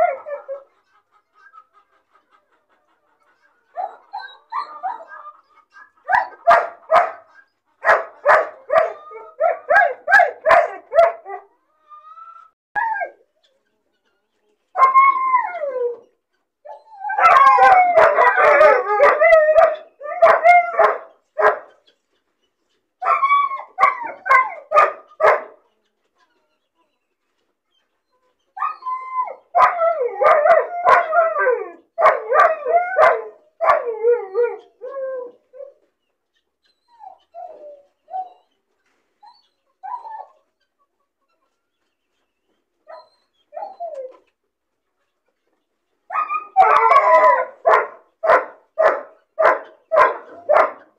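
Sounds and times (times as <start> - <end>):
puppy yelping barks: 6.0 - 11.5, 16.7 - 21.7, 23.0 - 25.6, 28.6 - 35.4, 46.1 - 50.9
puppy howling whines: 12.8 - 13.2, 14.8 - 16.1, 16.7 - 20.9, 23.0 - 24.6, 28.6 - 35.8, 36.8 - 38.4, 39.3 - 40.4, 42.9 - 44.2, 46.1 - 47.8.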